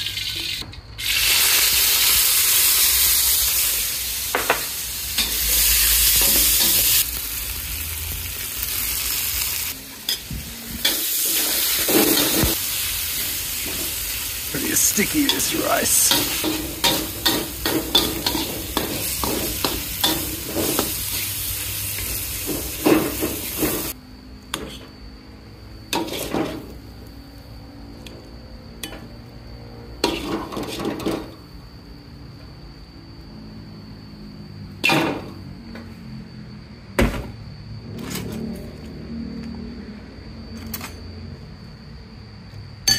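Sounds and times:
stir-fry sizzling in a wok: 0.0 - 24.0, 25.9 - 27.1, 29.8 - 31.4
spatula clanking on wok: 15.0 - 20.9.

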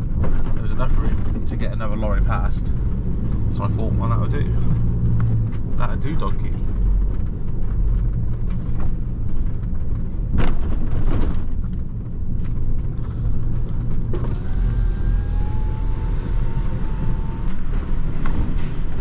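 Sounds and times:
knocks and rattles: 0.0 - 14.6
lorry engine rumble: 0.0 - 19.0
faint rising whine: 13.8 - 19.0.

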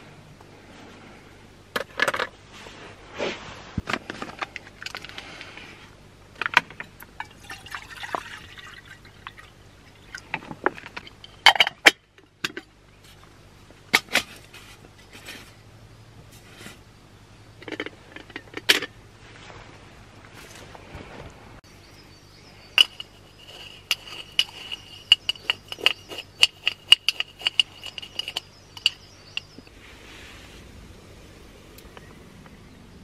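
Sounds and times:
metal pots clinking: 7.2 - 9.5, 22.7 - 29.6
liquid pouring: 7.2 - 10.3.

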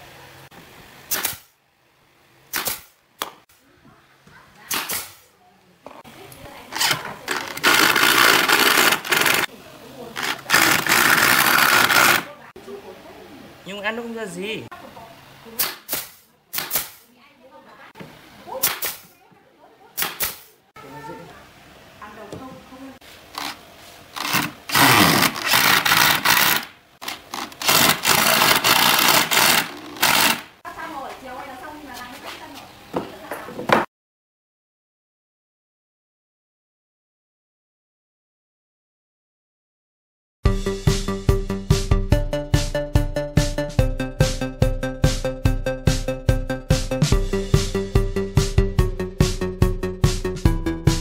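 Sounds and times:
nail gun firing: 1.1 - 1.5, 2.5 - 3.4, 4.7 - 5.3, 6.8 - 9.5, 10.2 - 12.3, 15.6 - 17.1, 18.6 - 19.1, 20.0 - 20.5, 24.2 - 30.6
cordless driver driving screw into wood: 6.8 - 9.5, 10.2 - 12.3, 24.2 - 30.5.

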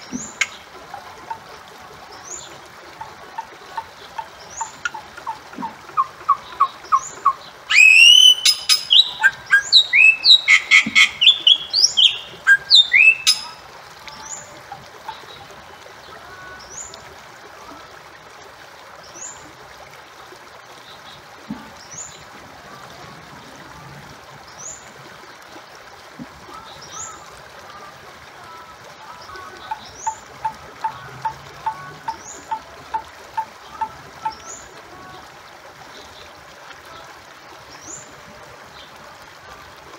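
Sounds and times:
background hiss: 0.0 - 28.3
bird calling: 3.4 - 13.6.

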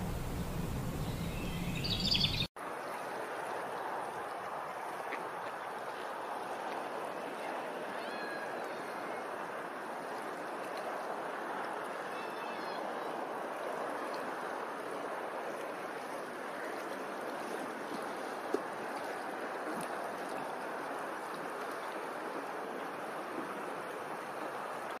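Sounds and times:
rushing water: 0.0 - 25.0.

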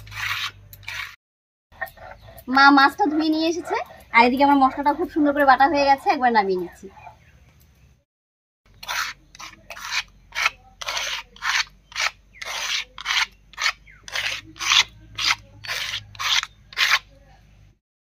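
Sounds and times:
stone scraping on rough stone: 0.0 - 1.2, 8.7 - 17.1.

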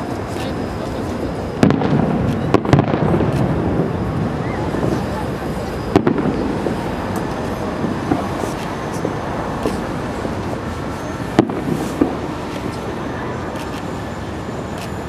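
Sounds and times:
steady background noise: 0.0 - 15.0
sharp firework bangs: 1.6 - 10.3, 11.3 - 12.9.

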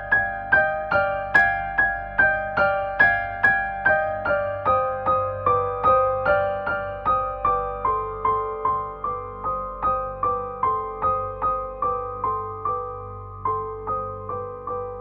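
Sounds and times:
slow solo piano: 0.0 - 15.0.

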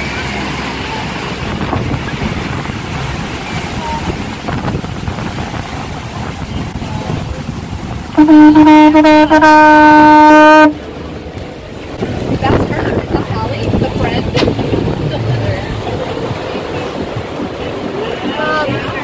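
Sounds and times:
boat wash rushing: 0.0 - 19.0
wind: 0.0 - 19.0
conch shell horn blowing: 8.1 - 10.8.

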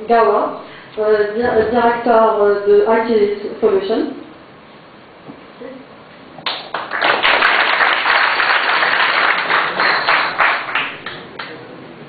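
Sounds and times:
audience applauding: 6.4 - 11.6.

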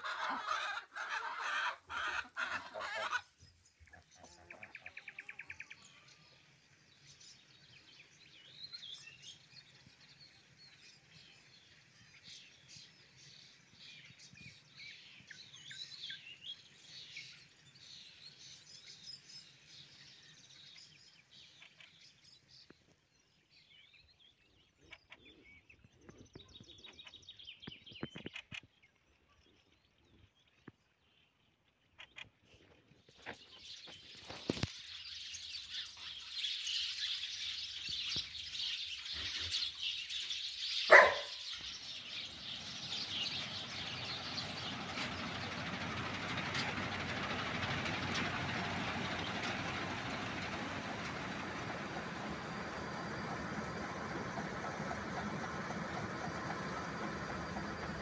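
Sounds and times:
loud bird call: 0.0 - 3.3, 38.6 - 58.0
songbirds chirping and twittering: 0.0 - 58.0.

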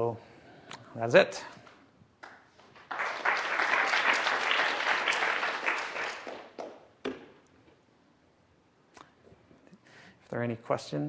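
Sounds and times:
audience applauding: 2.6 - 6.9.

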